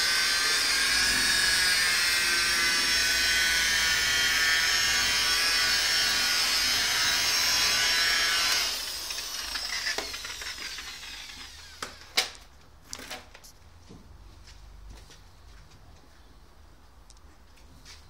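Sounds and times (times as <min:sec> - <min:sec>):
rotary polisher whining: 0:00.0 - 0:12.1.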